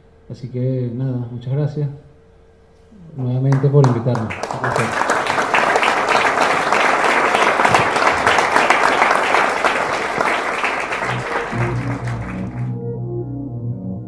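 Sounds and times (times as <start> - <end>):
audience applauding: 3.5 - 12.7
music: 9.2 - 14.0.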